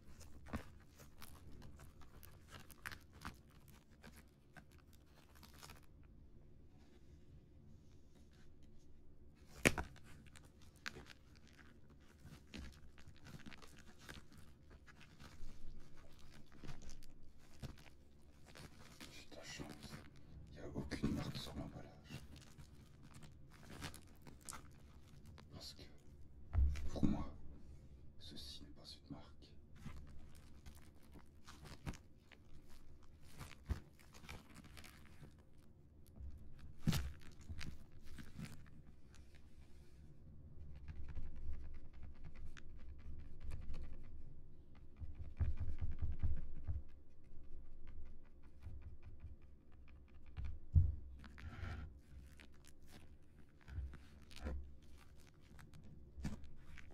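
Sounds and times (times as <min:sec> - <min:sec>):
plastic film crinkling: 0:00.0 - 0:06.0, 0:09.4 - 0:27.0, 0:29.7 - 0:39.5, 0:51.1 - 0:56.9
small taps and scratches: 0:07.9 - 0:20.2, 0:29.8 - 0:40.0, 0:40.6 - 0:56.9.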